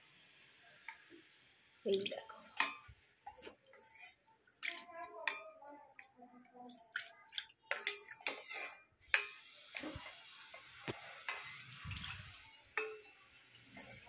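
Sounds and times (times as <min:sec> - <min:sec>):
liquid splashing: 0:01.8 - 0:08.7, 0:11.4 - 0:12.4.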